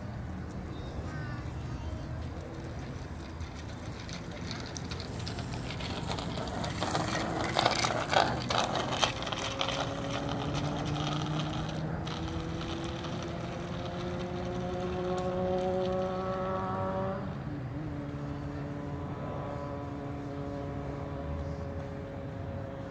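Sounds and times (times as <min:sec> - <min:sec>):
vehicle engine running: 0:01.2 - 0:17.2.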